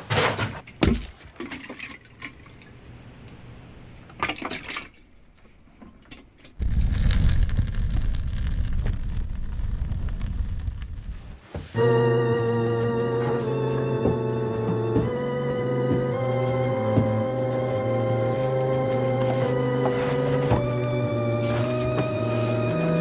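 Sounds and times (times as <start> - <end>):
liquid sloshing in container: 0.7 - 2.8, 4.1 - 5.2.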